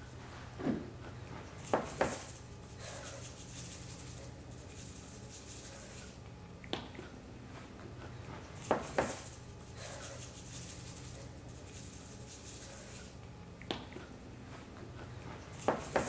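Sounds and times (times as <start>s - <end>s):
seasoning being shaken out: 1.4s - 6.2s, 8.5s - 13.2s, 15.5s - 16.0s.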